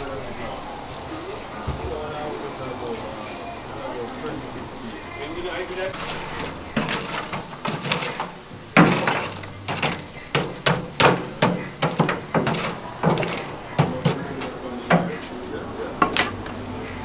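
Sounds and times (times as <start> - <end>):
poker clanking in charcoal: 6.0 - 15.3, 16.0 - 16.7.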